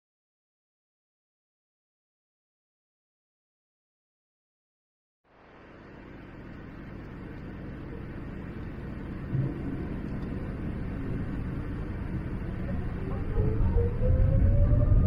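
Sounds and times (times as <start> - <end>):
airliner cabin engine rumble: 5.7 - 15.0.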